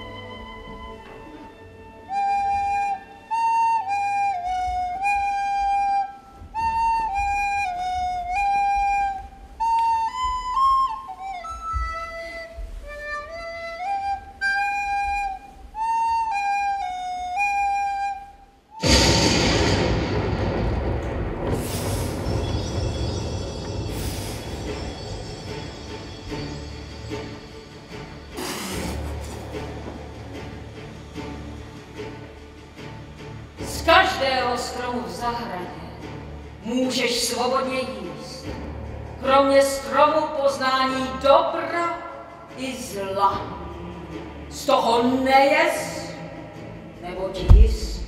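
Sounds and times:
recorder playing slow tune: 2.1 - 18.8
loud rushing noise with rumble: 18.8 - 24.5.

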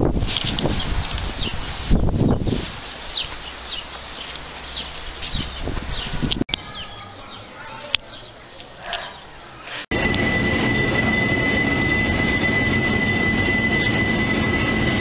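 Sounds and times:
small birds chirping: 0.4 - 9.8
thin bird calls: 2.4 - 9.8.

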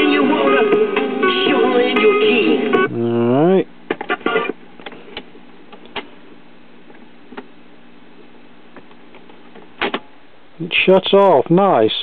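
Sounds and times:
steady hum: 0.0 - 12.0
record changer mechanism clicks: 3.9 - 6.1.

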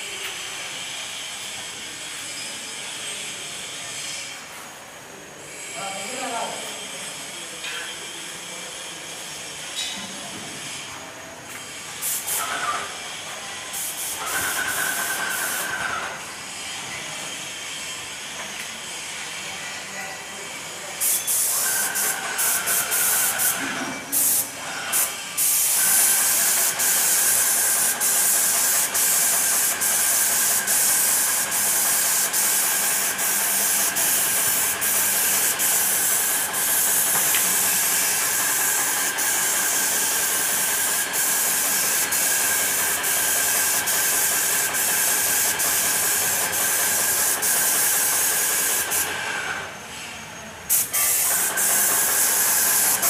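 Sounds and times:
paint spray gun hissing: 12.0 - 13.0, 13.7 - 16.2, 21.0 - 49.6, 50.7 - 53.0.

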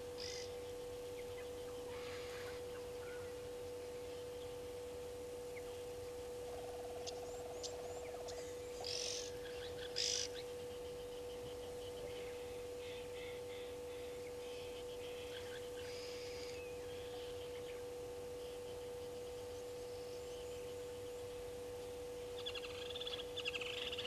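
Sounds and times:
steady hum: 0.0 - 24.0.

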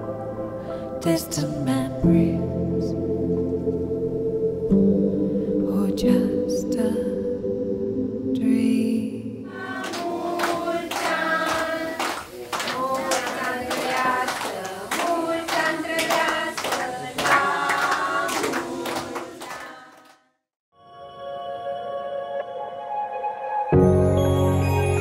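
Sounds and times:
group singing: 8.6 - 20.2
people clapping: 9.6 - 20.2.

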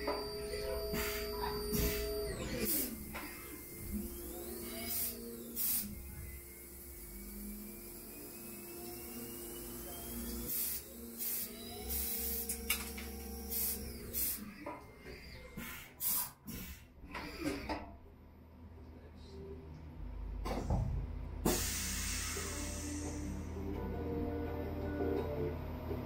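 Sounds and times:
high whine: 0.0 - 14.0
lathe spindle hum: 0.0 - 15.4
coolant spray hiss: 21.5 - 23.3.

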